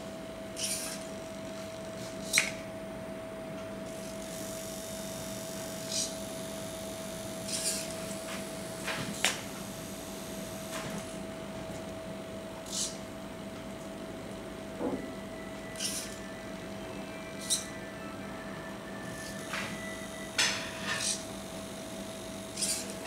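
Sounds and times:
steady hum: 0:00.0 - 0:23.0
servo motors whirring: 0:00.6 - 0:01.0, 0:04.0 - 0:06.5, 0:07.2 - 0:10.0, 0:12.6 - 0:13.0, 0:15.7 - 0:16.3, 0:17.3 - 0:17.7, 0:19.1 - 0:19.9, 0:20.9 - 0:21.3, 0:22.5 - 0:23.0.

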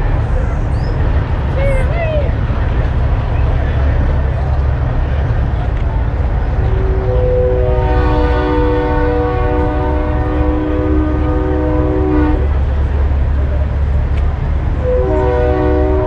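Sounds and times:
truck engines rumbling: 0:00.0 - 0:16.0
truck air horn chord: 0:06.8 - 0:12.5, 0:14.8 - 0:16.0.

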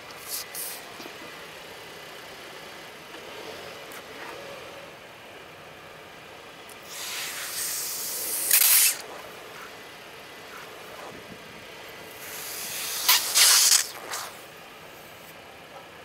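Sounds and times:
liquid spraying hiss: 0:06.8 - 0:09.0, 0:12.2 - 0:14.4
car tyre crushing toy balls: 0:12.1 - 0:14.5.

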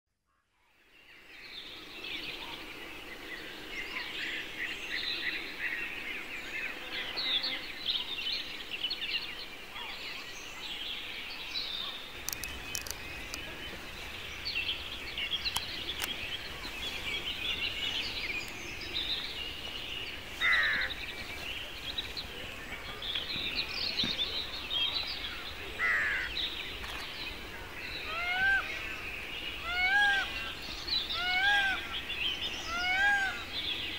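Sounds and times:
birds chirping and trilling: 0:00.8 - 0:33.9
down-sweeping bird calls: 0:11.8 - 0:33.9.

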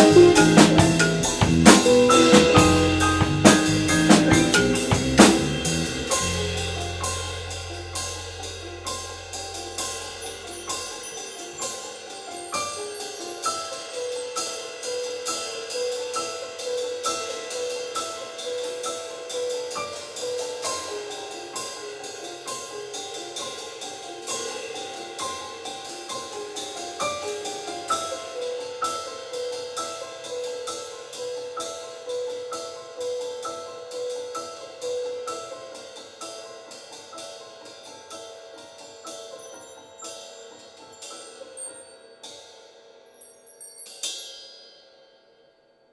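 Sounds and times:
bell-like pitched notes: 0:00.0 - 0:07.4
cymbal strokes: 0:00.0 - 0:28.0.

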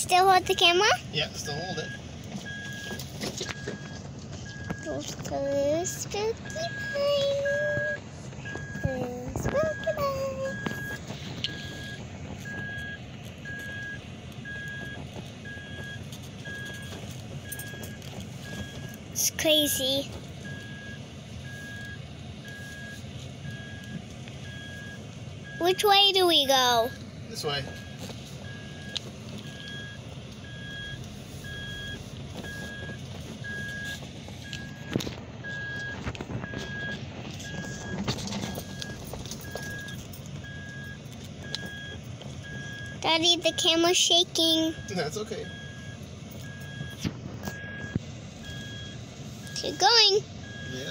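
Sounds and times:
engine and tyres rumbling: 0:00.0 - 0:50.9
warning chime beeping: 0:05.7 - 0:16.8, 0:17.5 - 0:28.9, 0:36.5 - 0:50.9.

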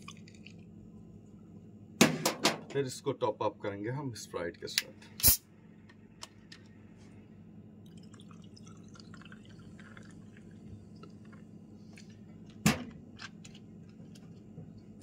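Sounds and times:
soda fizzing as poured: 0:07.9 - 0:11.0.

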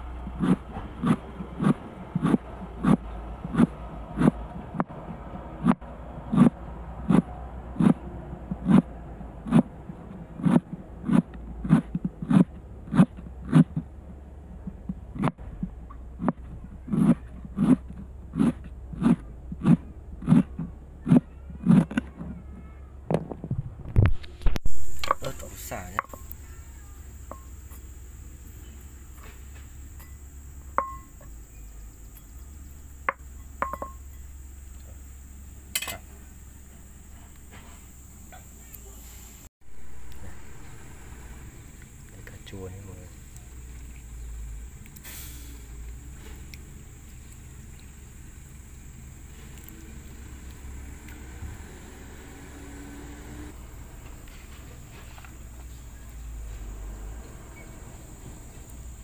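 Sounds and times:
high insect chirr: 0:24.7 - 0:59.0
ceramic plate clinking: 0:30.8 - 0:31.2, 0:33.1 - 0:34.2.

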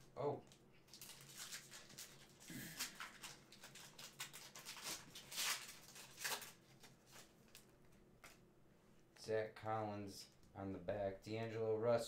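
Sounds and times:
cards being handled: 0:00.9 - 0:08.4
foil wrapper crinkling: 0:00.9 - 0:08.4.

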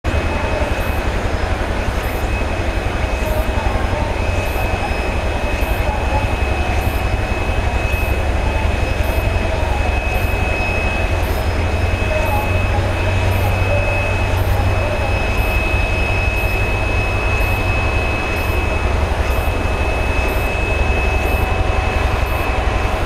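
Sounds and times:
jet engines whining: 0:00.0 - 0:23.0
low engine rumble: 0:00.0 - 0:23.0.

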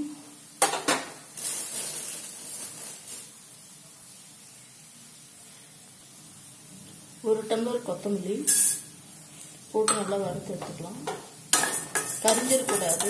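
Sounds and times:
gas burner hissing: 0:07.3 - 0:13.0.

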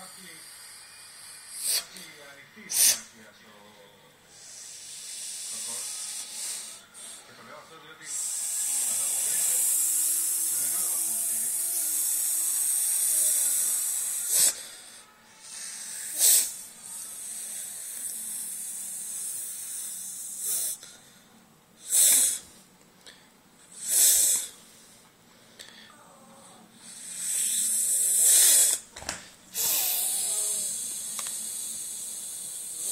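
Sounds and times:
person hissing like a snake: 0:01.5 - 0:02.0, 0:02.7 - 0:03.1, 0:04.3 - 0:07.2, 0:08.1 - 0:20.8, 0:21.8 - 0:22.5, 0:23.7 - 0:24.6, 0:26.8 - 0:28.8, 0:29.5 - 0:32.9.

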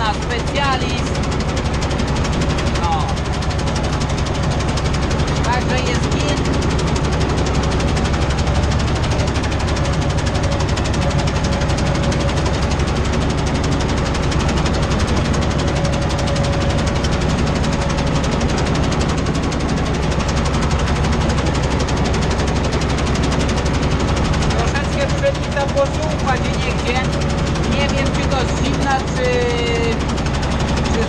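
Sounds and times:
tractor engine running under load: 0:00.0 - 0:31.0.

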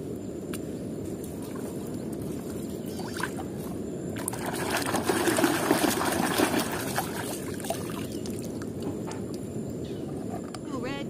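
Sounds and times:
hand splashing water in tub: 0:04.2 - 0:08.1.

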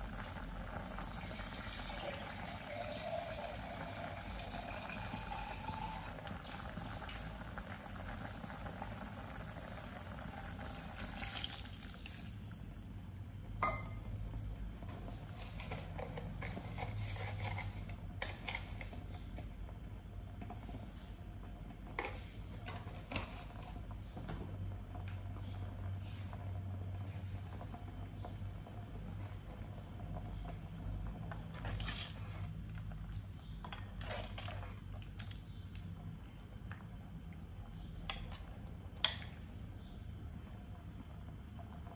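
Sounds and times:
soup bubbling in pot: 0:00.0 - 0:41.9
steady low hum: 0:12.3 - 0:41.9.

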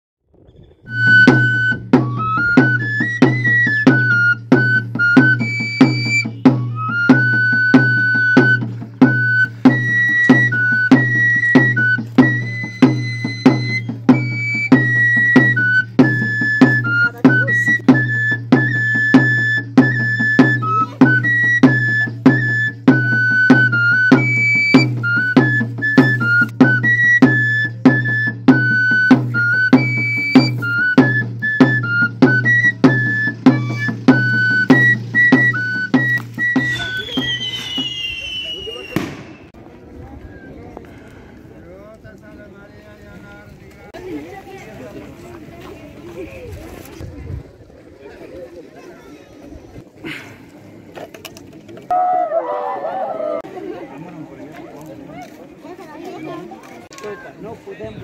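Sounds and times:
flute melody: 0:00.6 - 0:39.6, 0:51.9 - 0:53.4
steady drum beat: 0:00.9 - 0:39.6.

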